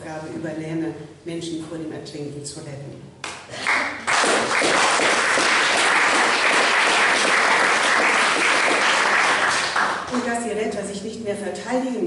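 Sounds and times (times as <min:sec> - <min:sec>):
audience applauding: 0:03.6 - 0:10.1.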